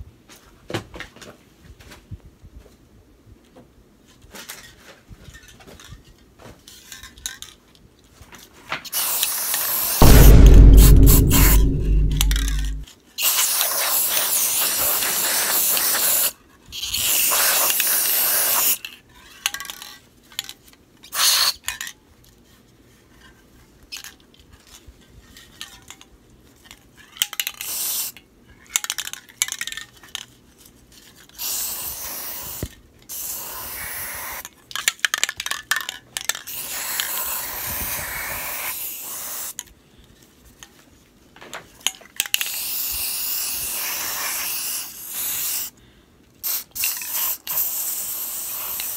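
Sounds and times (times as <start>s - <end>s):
spray paint can hissing: 9.0s - 10.1s, 13.4s - 16.3s, 17.0s - 18.8s, 27.6s - 28.1s, 31.4s - 34.4s, 36.5s - 39.5s, 42.5s - 45.7s, 46.4s - 48.9s.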